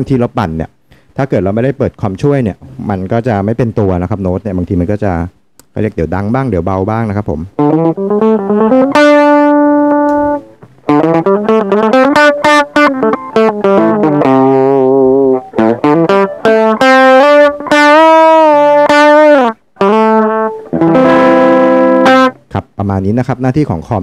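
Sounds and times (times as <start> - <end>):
electric guitar lead: 7.6 - 22.6.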